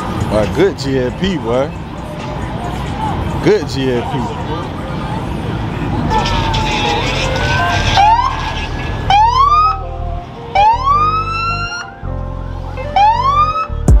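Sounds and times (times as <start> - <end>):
music with deep bass: 4.2 - 14.0
siren whoops: 9.1 - 9.9, 10.5 - 11.9, 12.9 - 13.8.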